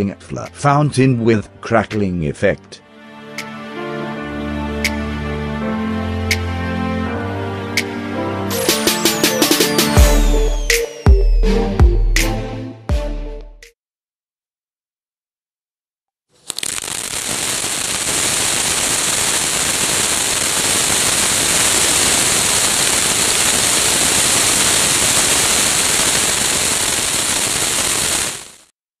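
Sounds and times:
firework fountain crackling: 16.4s - 28.7s
high hiss of sparks: 16.4s - 28.7s.

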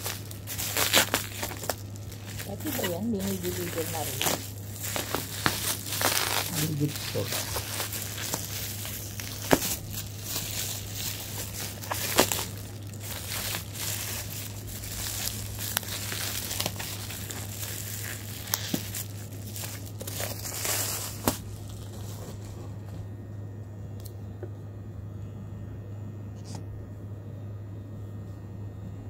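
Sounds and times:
bubble wrap crinkling: 0.0s - 23.2s
steady low hum: 0.0s - 29.0s.

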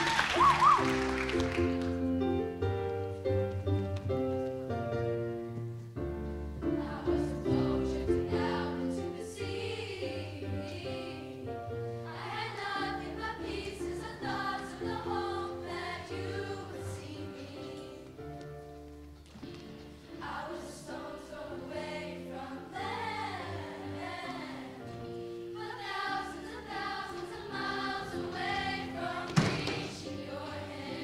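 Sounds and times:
choir singing in parts: 6.6s - 18.2s, 20.1s - 31.0s.

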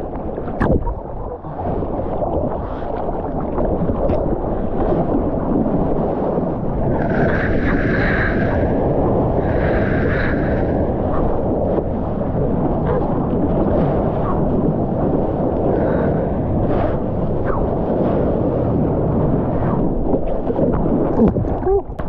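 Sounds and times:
water rushing and splashing: 0.0s - 7.4s, 18.6s - 22.0s
wind on microphone: 0.0s - 22.0s.

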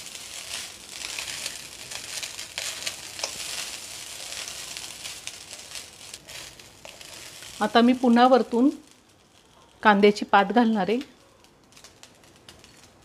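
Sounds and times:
food sizzling in a pan: 0.0s - 13.0s
spatula scraping a pan: 0.1s - 7.6s.

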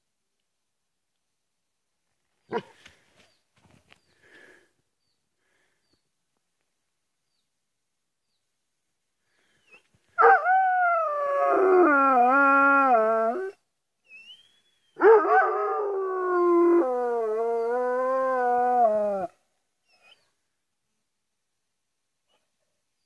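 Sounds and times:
dog howling: 10.2s - 13.6s, 15.0s - 19.3s.

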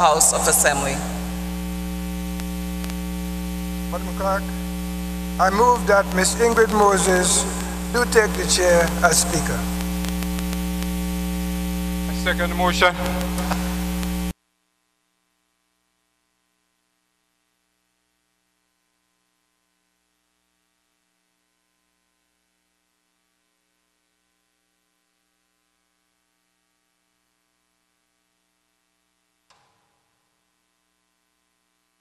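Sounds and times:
electrical mains hum: 0.0s - 14.3s.

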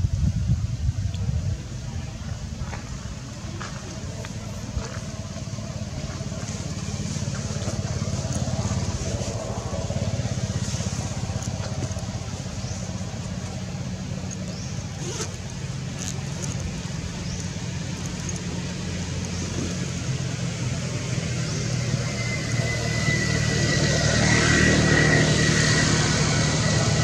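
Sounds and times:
low engine rumble: 0.0s - 27.0s.

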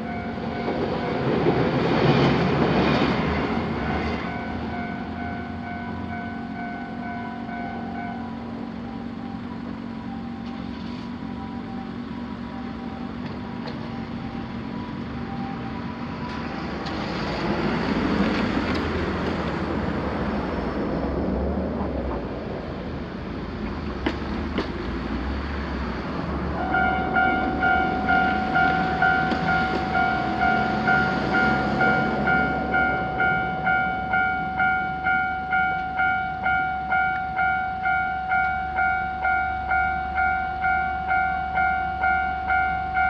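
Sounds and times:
crossing warning bell ringing: 0.0s - 17.0s, 26.5s - 43.0s
electric train rumbling: 0.0s - 43.0s.

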